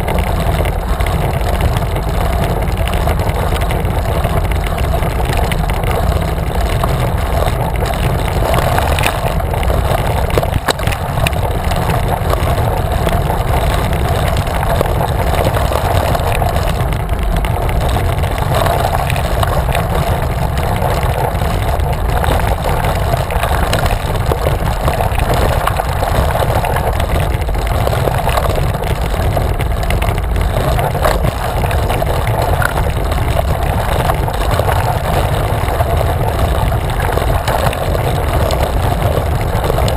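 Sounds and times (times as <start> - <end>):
bicycle tyre rumble on asphalt: 0.0 - 39.9
wind buffeting microphone: 0.0 - 39.9.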